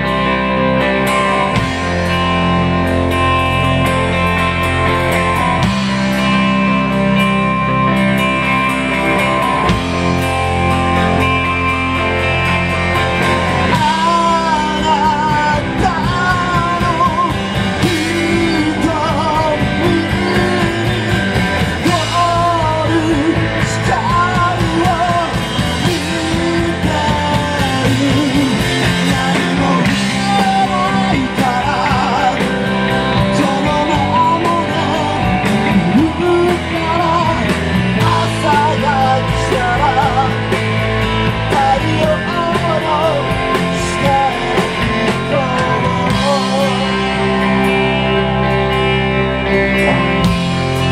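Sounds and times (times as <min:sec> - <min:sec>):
drums: 0:00.0 - 0:50.9
electric bass: 0:00.0 - 0:50.9
rock band playing loudly: 0:00.0 - 0:50.9
person singing: 0:13.1 - 0:48.6.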